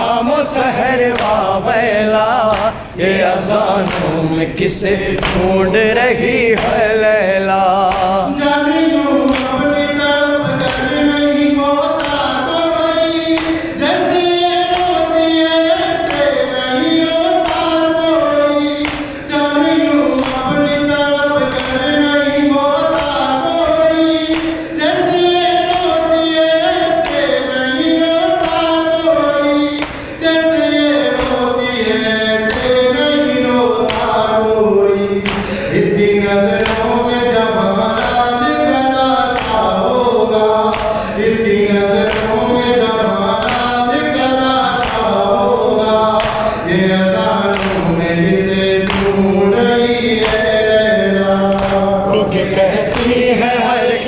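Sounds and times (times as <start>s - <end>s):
rhythmic sharp slaps: 0.0s - 54.0s
voices singing in chorus: 0.0s - 54.0s.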